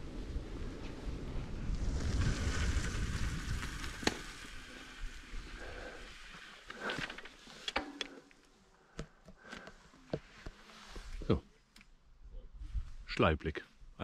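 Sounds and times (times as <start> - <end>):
wind rumble on microphone: 0.0 - 6.0
bicycle rolling on gravel: 0.0 - 7.7.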